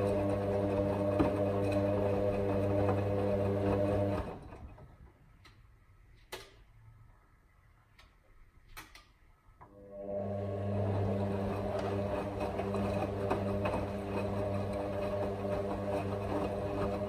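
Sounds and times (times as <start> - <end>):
washing machine motor humming: 0.0 - 5.0, 9.7 - 17.0.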